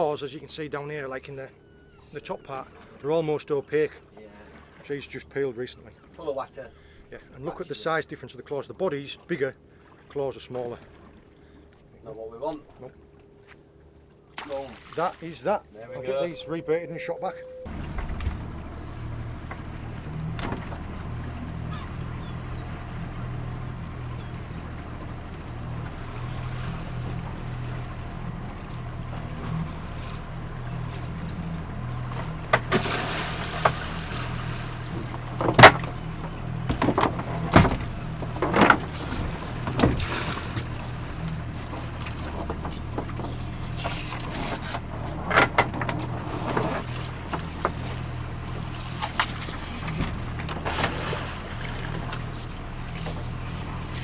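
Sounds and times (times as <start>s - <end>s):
outboard motor idling: 0.0s - 54.0s
lobster pots knocking on boat: 35.0s - 39.0s.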